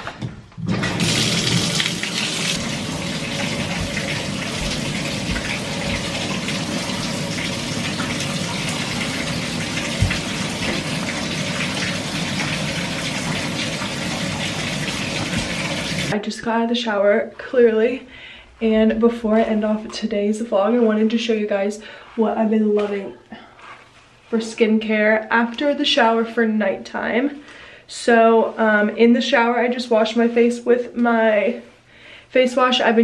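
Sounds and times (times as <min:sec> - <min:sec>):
shower valve turned on: 0:00.6 - 0:16.2
water running into tub: 0:00.6 - 0:16.2.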